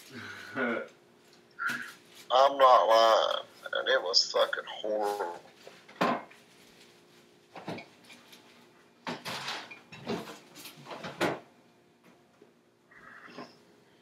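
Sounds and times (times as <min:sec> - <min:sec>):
pots and utensils clanking: 0:09.1 - 0:11.3.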